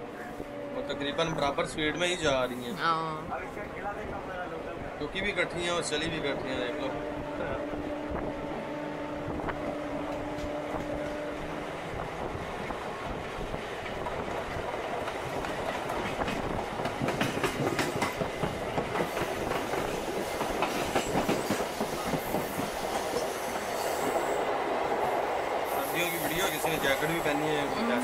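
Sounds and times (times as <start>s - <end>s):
train wheels clattering over rails: 13.1s - 27.2s.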